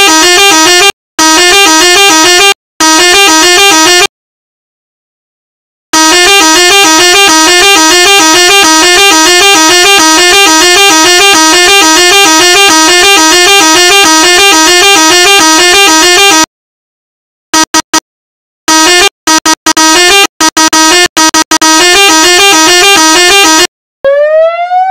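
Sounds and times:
warbling electronic siren: 0:06.0 - 0:16.5, 0:19.8 - 0:24.9.

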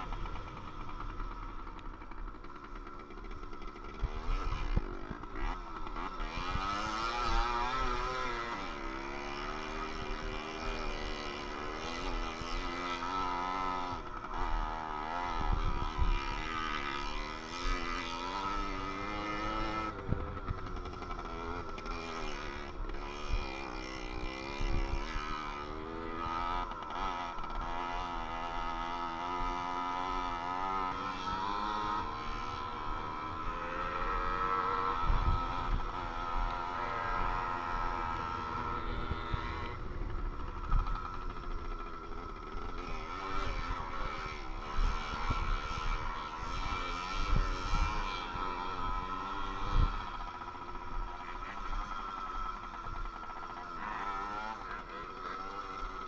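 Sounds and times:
two-stroke moped engine revving: 0:00.0 - 0:56.0.

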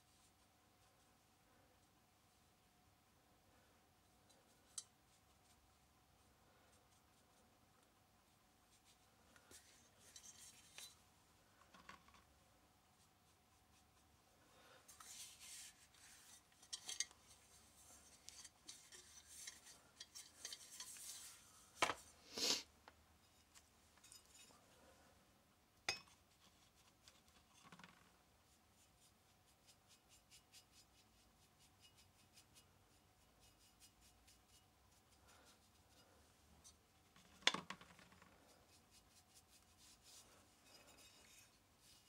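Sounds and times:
metal parts rubbing and scraping: 0:09.5 - 0:11.0, 0:14.9 - 0:21.5.

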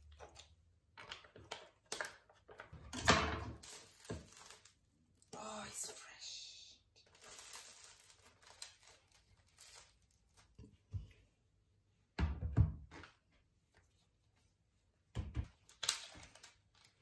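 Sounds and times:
bread crackling as torn: 0:07.1 - 0:10.6.

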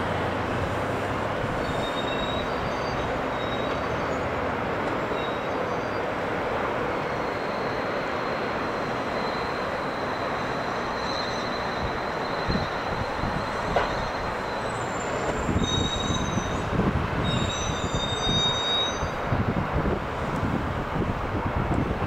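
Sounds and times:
airport ground rumble and hiss: 0:00.0 - 0:22.0.

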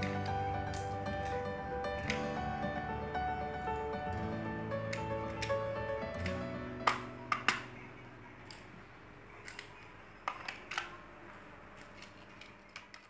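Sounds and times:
toy cars clicking against plastic: 0:09.4 - 0:11.0, 0:11.7 - 0:13.0.

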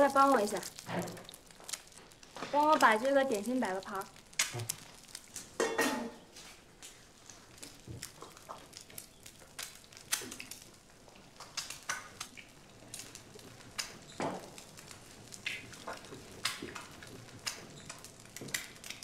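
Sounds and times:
dishes clattering on wooden counter: 0:05.6 - 0:06.2.

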